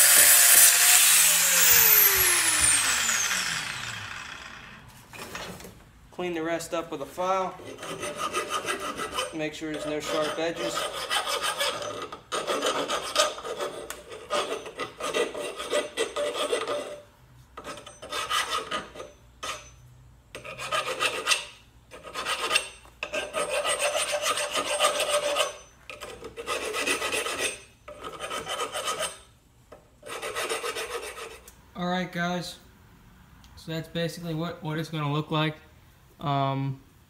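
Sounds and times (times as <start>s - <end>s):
hand file scraping steel: 0.0s - 4.4s, 7.4s - 29.3s, 30.0s - 31.6s.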